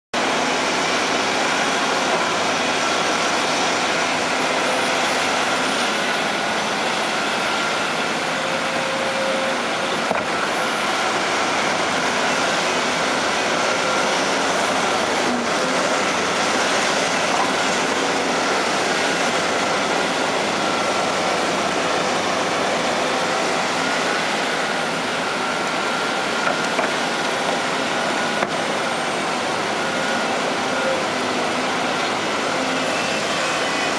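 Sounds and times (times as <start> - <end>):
diesel engines running: 0.2 - 33.9
hydraulic whine: 0.2 - 33.9.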